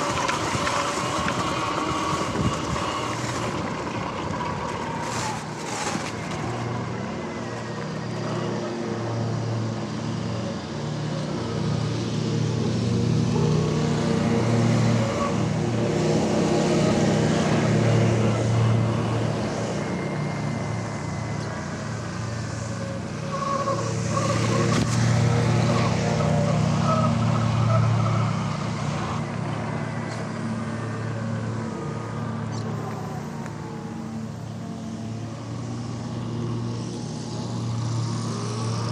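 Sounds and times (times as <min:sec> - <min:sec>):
tyre noise: 0:00.0 - 0:06.9
wind rushing over microphone: 0:00.0 - 0:06.9
electric motor whine: 0:00.0 - 0:38.9.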